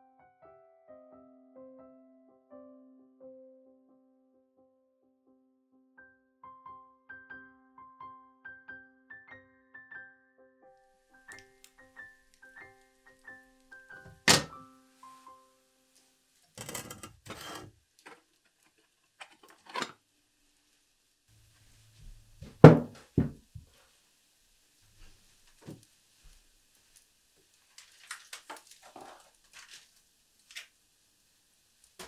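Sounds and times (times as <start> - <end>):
metal stove doors scraping: 16.6 - 17.7
knocks: 22.4 - 23.4
heavy thunk: 22.5 - 23.4.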